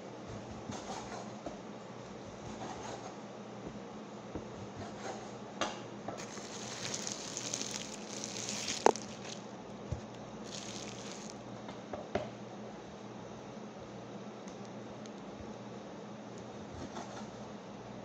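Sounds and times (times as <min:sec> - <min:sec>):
wet squishing of meat handled: 0:06.2 - 0:09.5, 0:10.5 - 0:11.4.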